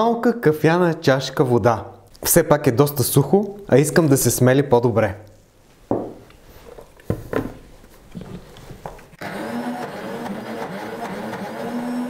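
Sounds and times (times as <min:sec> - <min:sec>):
blender grinding paste: 0:09.2 - 0:12.0.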